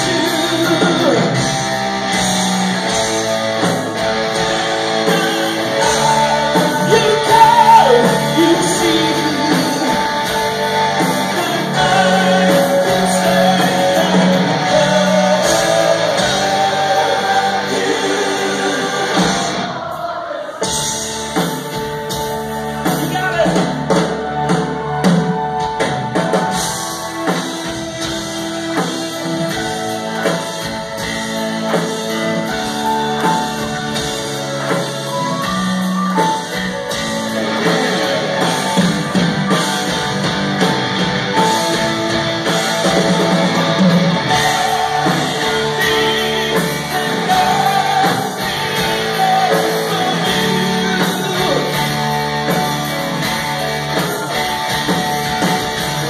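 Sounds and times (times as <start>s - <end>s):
electric guitar: 0.0s - 19.9s, 20.7s - 56.0s
drums: 0.0s - 56.0s
person singing: 5.0s - 21.0s, 42.8s - 53.1s.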